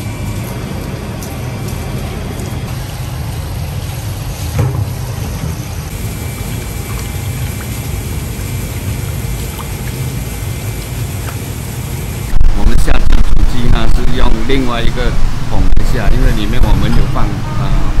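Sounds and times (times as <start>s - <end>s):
water sloshing in a tub: 1.2s - 10.1s.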